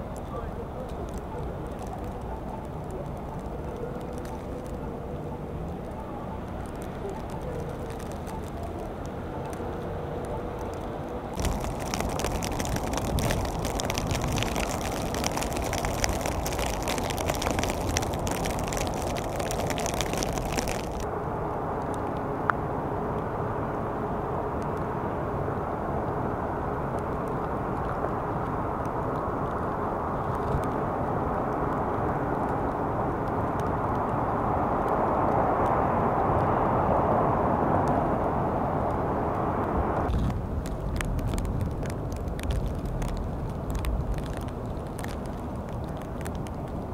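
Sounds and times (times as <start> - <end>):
dense crackling ticks: 0.0 - 21.1, 40.1 - 46.9
low traffic hum: 0.0 - 46.9
steady outdoor rushing noise: 0.0 - 46.9
wind noise on microphone: 10.6 - 21.1, 28.8 - 46.9.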